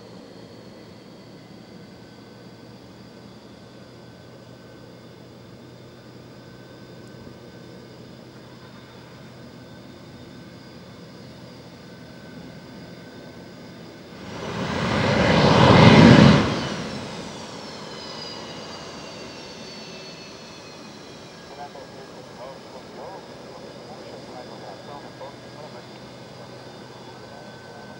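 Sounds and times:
jet engine hum and whine: 0.0 - 27.9
jet passing with loud rush: 14.1 - 20.5.

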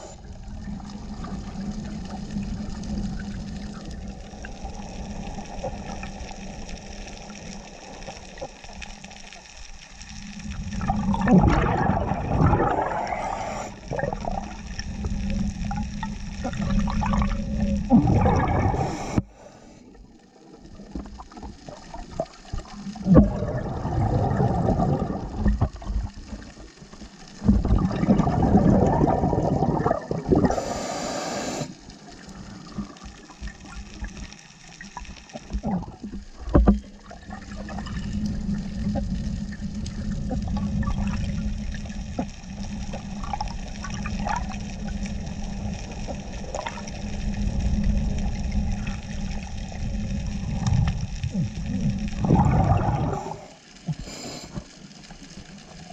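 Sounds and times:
underwater exhalation bubbling: 10.2 - 19.2, 20.6 - 26.6, 27.3 - 33.8, 35.4 - 54.8.

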